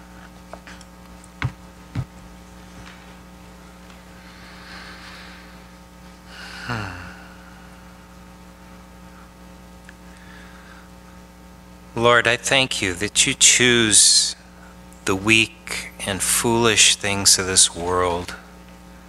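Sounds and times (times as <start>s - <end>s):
electrical mains hum: 0.0s - 19.0s
breath and falling sigh: 6.3s - 7.9s.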